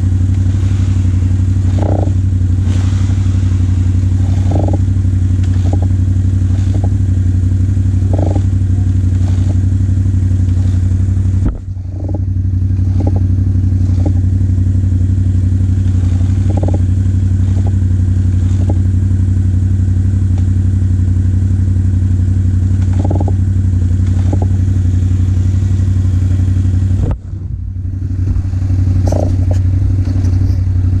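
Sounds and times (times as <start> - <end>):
quad bike engine running: 0.0 - 31.0.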